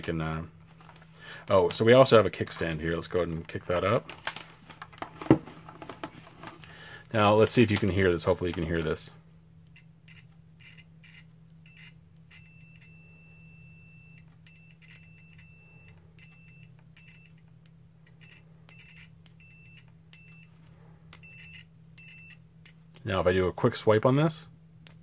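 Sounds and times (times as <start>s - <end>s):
multimeter buzzer beeping: 9.7s - 17.4s, 18.1s - 20.5s.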